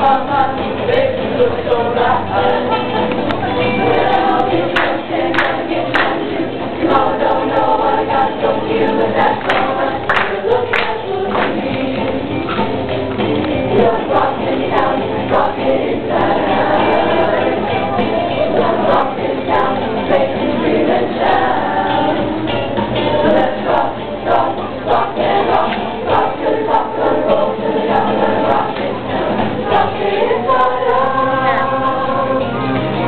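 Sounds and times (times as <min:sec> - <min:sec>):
choir singing: 0:00.0 - 0:12.3, 0:13.6 - 0:33.0
music accompaniment: 0:00.0 - 0:33.0
handclaps: 0:04.7 - 0:06.2, 0:09.4 - 0:11.7.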